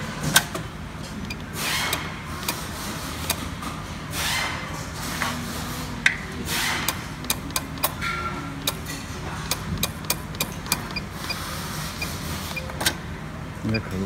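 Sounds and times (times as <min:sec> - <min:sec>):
control panel key clicks: 0:06.9 - 0:08.0, 0:09.5 - 0:11.1.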